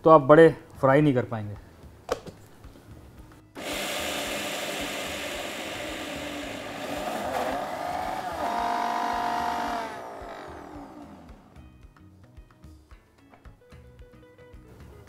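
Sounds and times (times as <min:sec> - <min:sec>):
mixer grinder running: 0:03.6 - 0:11.8.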